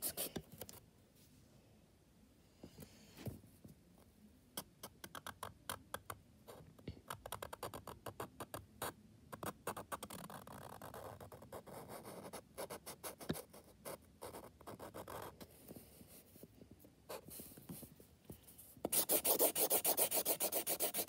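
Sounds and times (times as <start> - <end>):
marker scratching on paper: 9.4 - 15.4, 18.8 - 21.0.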